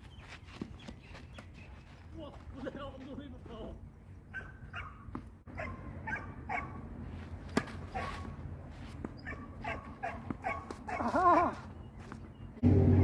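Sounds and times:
dog yapping: 4.3 - 5.0, 9.2 - 11.6.

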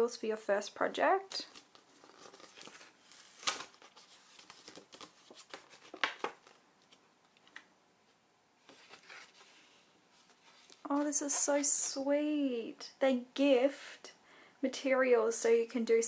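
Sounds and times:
card crackling: 1.3 - 7.7, 8.7 - 9.6
paper rustling and sliding: 1.5 - 7.6, 8.6 - 11.4.

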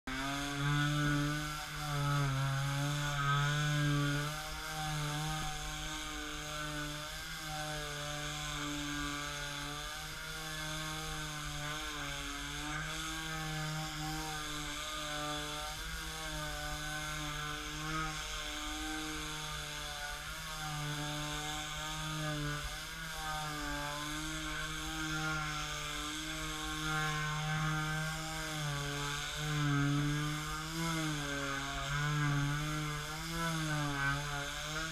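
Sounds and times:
sander sanding wood: 0.1 - 34.9.

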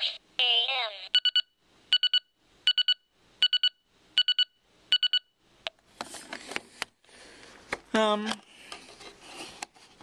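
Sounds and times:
alarm clock beeping: 1.2 - 5.3.

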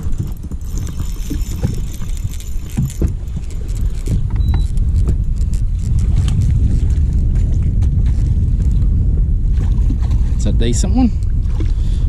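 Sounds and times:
wind buffeting microphone: 0.0 - 12.0
fishing reel clicking: 0.6 - 4.8.

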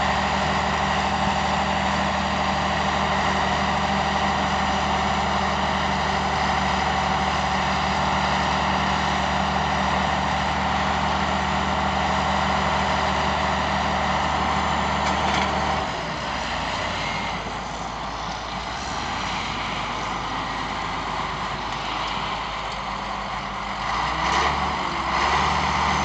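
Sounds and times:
diesel dozer engines running: 0.0 - 26.0.

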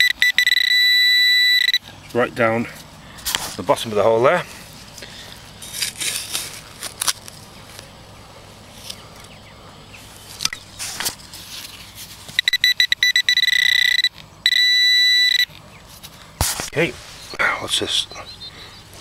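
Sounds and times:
metal detector pinpointer beeping: 0.0 - 1.8, 12.4 - 15.6
digging tool scraping soil: 5.6 - 7.4, 16.0 - 17.3.

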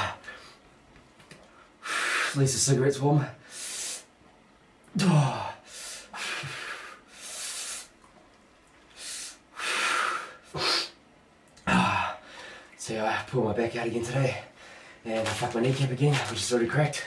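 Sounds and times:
man breathing hard: 3.4 - 4.1, 5.2 - 7.9, 9.0 - 11.0, 14.6 - 15.0
man groaning: 5.0 - 5.6, 11.6 - 12.2.

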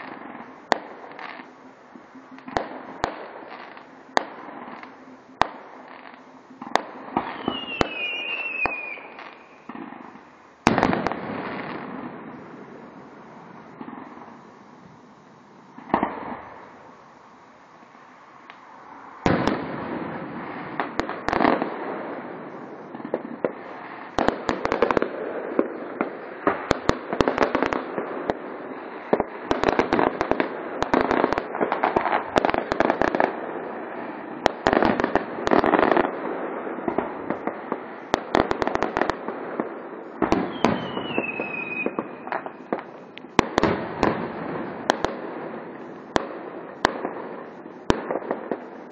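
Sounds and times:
firework bangs and crackling: 0.0 - 48.9
firework whistle falling in pitch: 1.4 - 9.7, 40.4 - 42.5.

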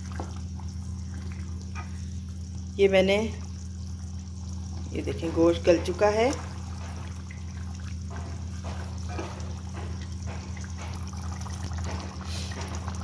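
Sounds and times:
gravy sloshing and bubbling: 0.0 - 13.0
steady low hum: 0.0 - 13.0.

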